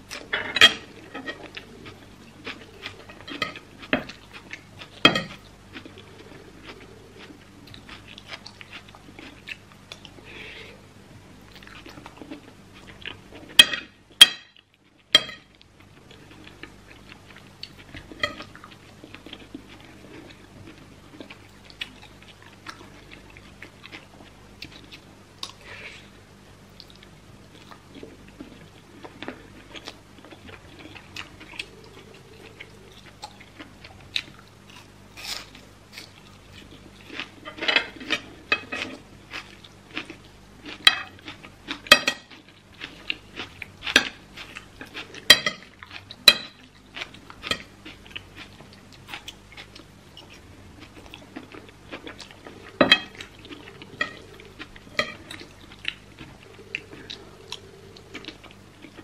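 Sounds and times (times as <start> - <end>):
wet chewing: 26.8 - 59.0.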